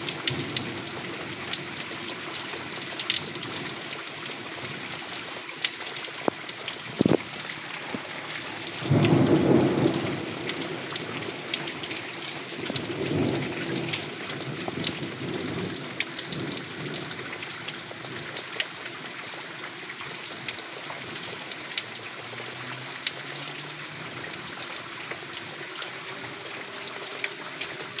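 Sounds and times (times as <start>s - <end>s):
close raindrop taps: 0.0s - 25.5s
heavy rain on puddles: 0.0s - 28.0s
thunder rumbling: 7.9s - 17.2s.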